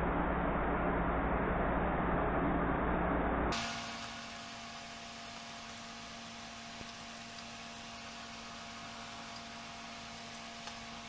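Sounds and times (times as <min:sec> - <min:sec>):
room hum and hiss: 0:03.5 - 0:11.0.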